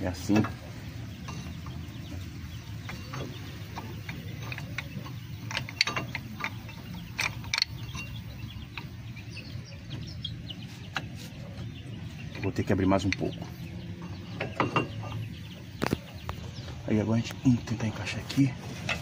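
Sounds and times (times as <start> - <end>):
metal clicks and knocks of brake pad: 2.8 - 8.9.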